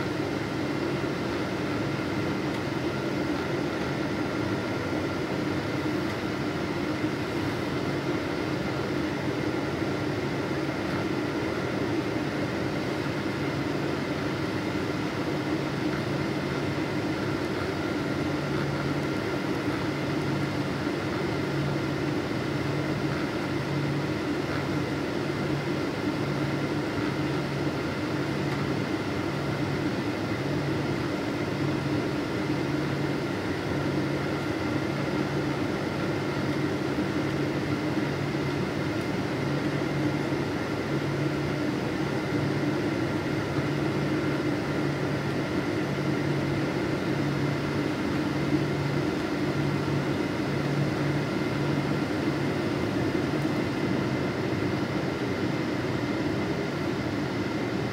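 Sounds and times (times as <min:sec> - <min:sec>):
airliner cabin engine hum: 0:00.0 - 0:57.9.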